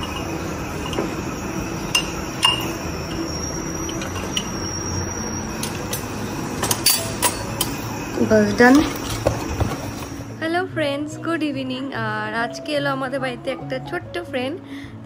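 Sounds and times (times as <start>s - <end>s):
glass cups clinking on metal: 0.0s - 7.9s.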